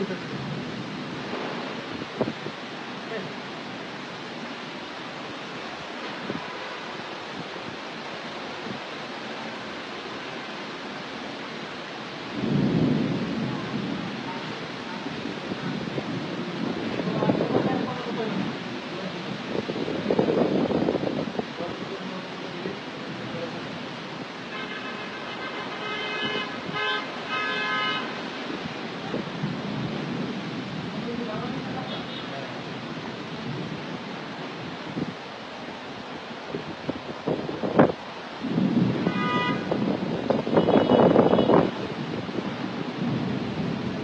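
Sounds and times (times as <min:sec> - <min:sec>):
thunder rumbling: 0:00.0 - 0:04.6, 0:12.2 - 0:21.8, 0:22.5 - 0:35.2, 0:36.1 - 0:44.0
heavy rain pouring: 0:00.0 - 0:44.0
vehicle horn honking: 0:24.5 - 0:28.1, 0:39.0 - 0:39.7, 0:40.5 - 0:41.7.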